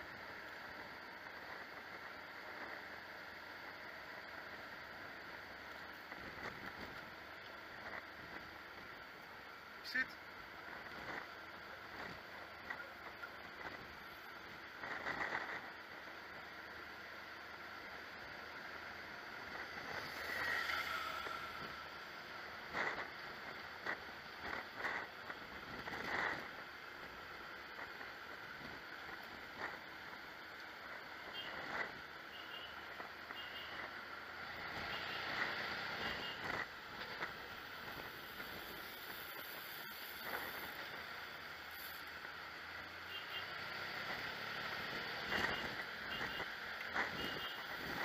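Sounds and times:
motorcycle running: 0:18.1 - 0:41.3.

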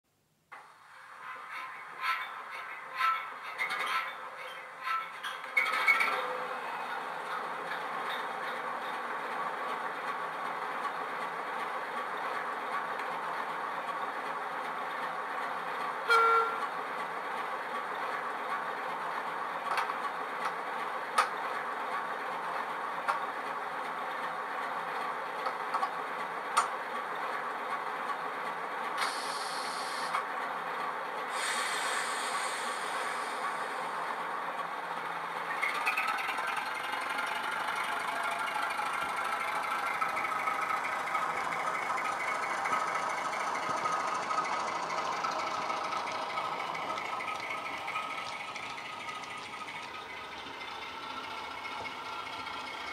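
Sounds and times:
model diesel engine idling sound: 0:31.3 - 0:34.4, 0:35.0 - 0:52.9.

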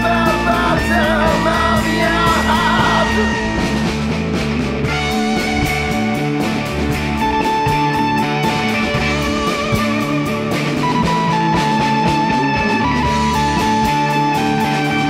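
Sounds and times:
person singing: 0:00.0 - 0:03.7
punk rock band playing: 0:00.0 - 0:15.0.

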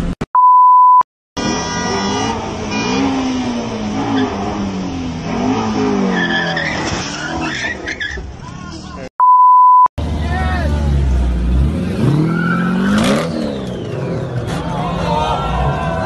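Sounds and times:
test-tone beep: 0:00.4 - 0:01.0, 0:09.2 - 0:09.9
sports car engine revving: 0:10.0 - 0:14.8.

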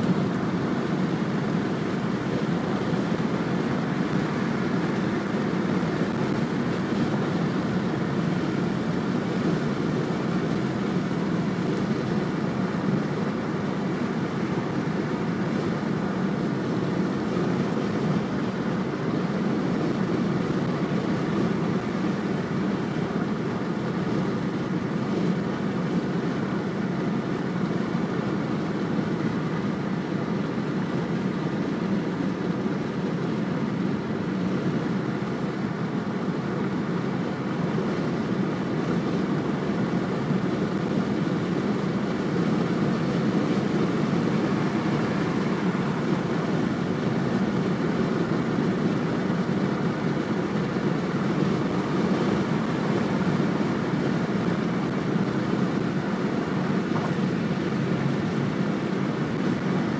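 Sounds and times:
car interior road rumble: 0:00.0 - 0:59.9.

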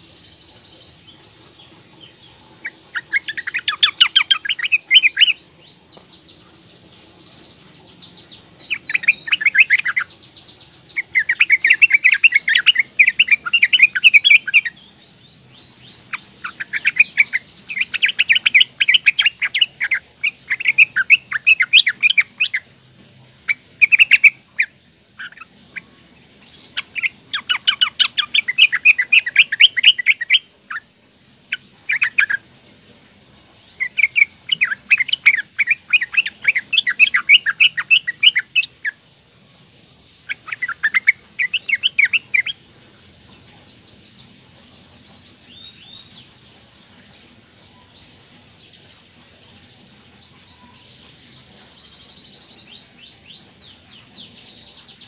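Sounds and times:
bird chattering calls: 0:01.8 - 0:05.4, 0:07.7 - 0:10.1, 0:11.0 - 0:14.8, 0:16.0 - 0:22.7, 0:23.5 - 0:25.9, 0:26.5 - 0:30.8, 0:31.5 - 0:32.5, 0:33.8 - 0:39.0, 0:40.3 - 0:42.6.

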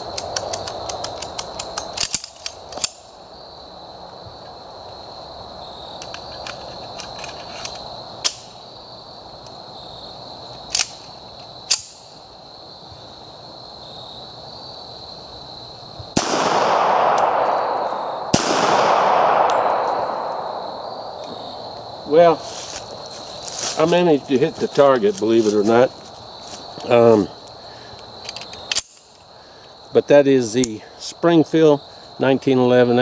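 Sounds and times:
pistol action clacking: 0:16.2 - 0:20.5
gunshots with echo: 0:16.2 - 0:21.2.

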